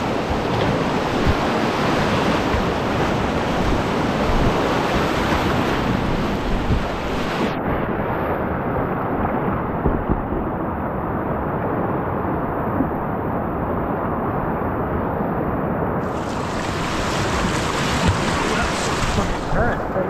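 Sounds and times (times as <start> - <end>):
whitewater rapids rushing: 16.0 - 20.0.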